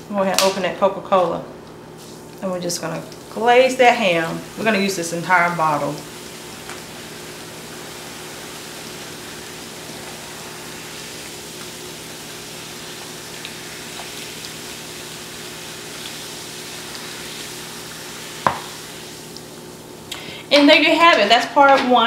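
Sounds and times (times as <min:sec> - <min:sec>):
soda pouring and fizzing: 0:03.0 - 0:20.1.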